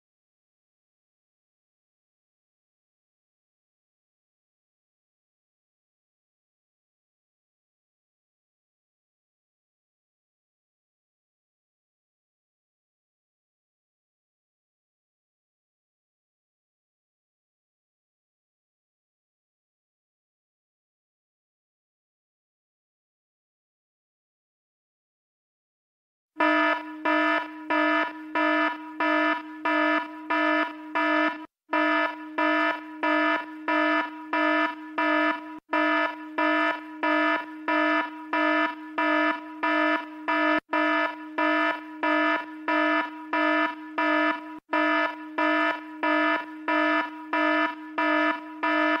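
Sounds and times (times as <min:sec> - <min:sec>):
electronic alarm beeping: 0:26.4 - 0:49.0.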